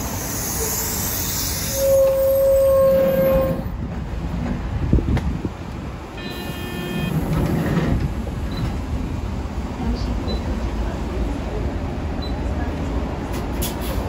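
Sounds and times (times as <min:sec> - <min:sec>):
bus door closing: 0:06.2 - 0:08.9, 0:13.2 - 0:14.0.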